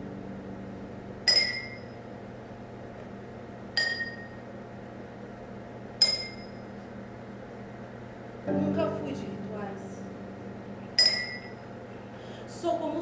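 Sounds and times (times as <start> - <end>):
faint low hum: 0.0 - 13.0
metallic chime strikes: 1.3 - 2.0, 3.8 - 4.4, 6.0 - 6.6, 8.6 - 11.8.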